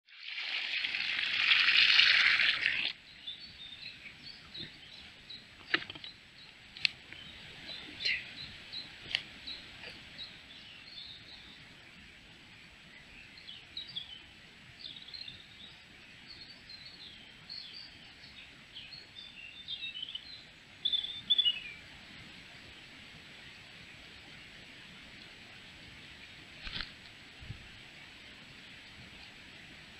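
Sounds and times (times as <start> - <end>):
small birds chirping: 2.8 - 22.0.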